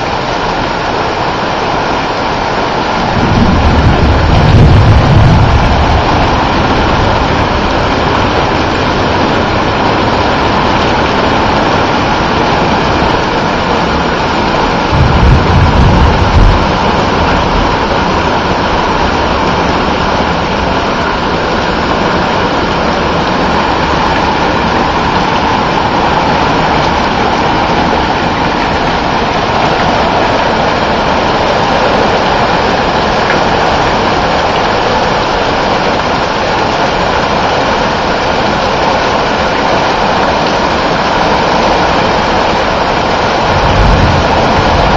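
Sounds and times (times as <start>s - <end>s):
heavy rain falling: 0.0s - 44.9s
low rumble: 3.1s - 10.6s, 14.8s - 20.7s.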